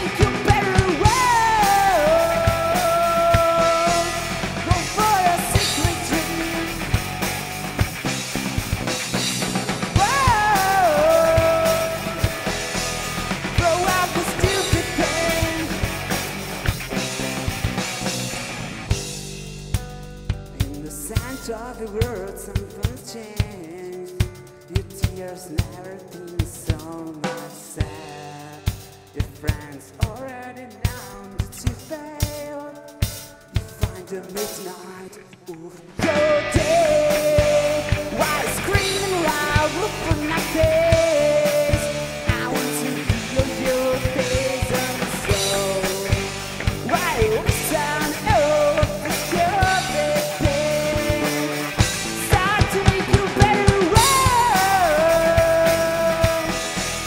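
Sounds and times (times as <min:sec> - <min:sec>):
live rock band playing: 0:00.0 - 0:57.0
drum hits: 0:36.0 - 0:57.0.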